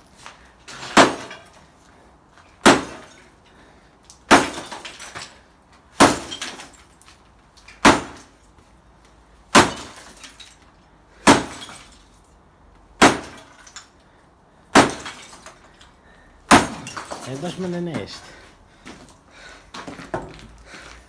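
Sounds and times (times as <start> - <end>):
sledgehammer striking concrete: 0.7 - 1.6, 2.6 - 3.2, 4.3 - 5.3, 6.0 - 6.8, 7.8 - 8.4, 9.5 - 10.4, 11.1 - 11.9, 13.0 - 13.8, 14.7 - 15.6, 16.4 - 18.2
broken pieces clattering: 4.3 - 5.4, 6.0 - 8.3, 9.6 - 12.3, 13.2 - 14.0, 14.8 - 18.2.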